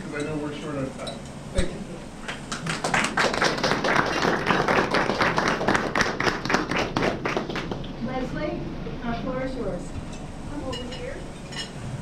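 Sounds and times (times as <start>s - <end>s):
audience applause: 2.3s - 7.9s.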